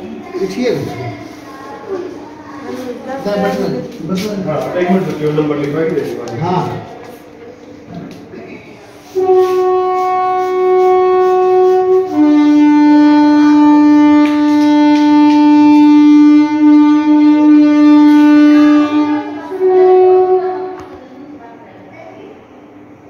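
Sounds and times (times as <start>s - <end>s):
wind instrument holding long notes: 8.8s - 21.0s.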